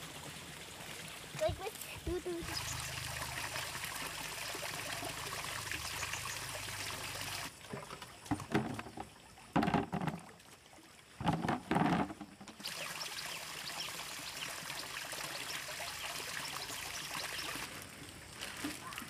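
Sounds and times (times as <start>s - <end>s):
water splashing and sloshing: 0.0s - 19.0s
water trickling: 0.0s - 19.0s.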